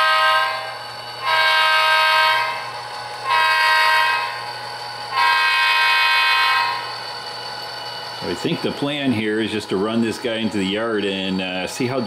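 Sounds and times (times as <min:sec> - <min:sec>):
model train air horn blasts: 0:00.0 - 0:07.0
steady low hum: 0:00.0 - 0:12.0.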